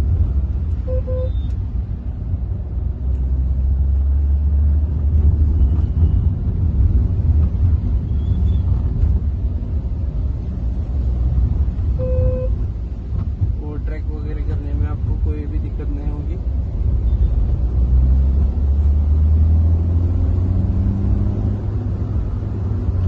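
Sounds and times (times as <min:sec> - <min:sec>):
diesel engine rumble in car cabin: 0:00.0 - 0:19.2
short double beep: 0:00.9 - 0:01.6, 0:12.0 - 0:12.6.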